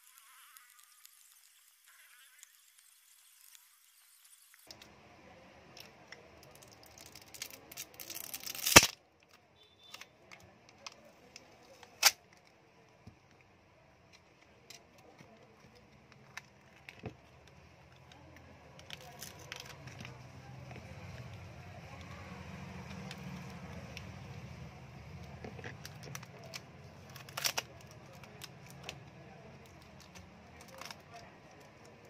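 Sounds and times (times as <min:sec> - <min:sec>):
clicks and crackles: 0:00.0 - 0:05.0, 0:05.6 - 0:32.0
sharp crack: 0:07.1 - 0:09.0, 0:11.9 - 0:12.2, 0:26.1 - 0:29.0.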